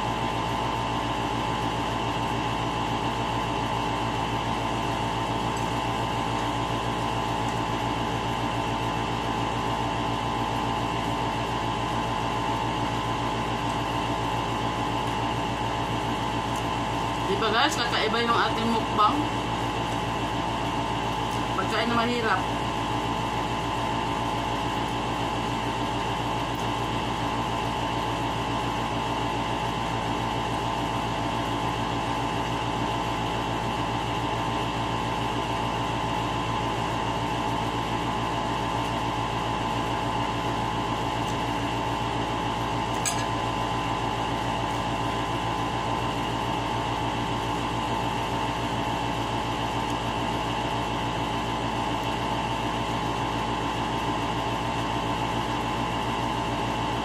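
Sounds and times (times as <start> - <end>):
steady machine hum: 0.0 - 57.0.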